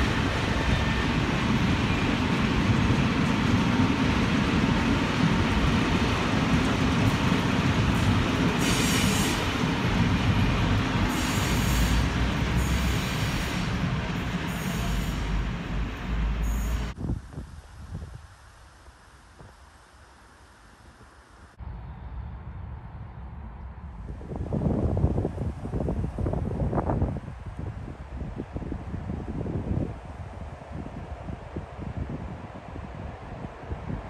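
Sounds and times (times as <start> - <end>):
train wheels rumbling on rails: 0.0 - 17.3.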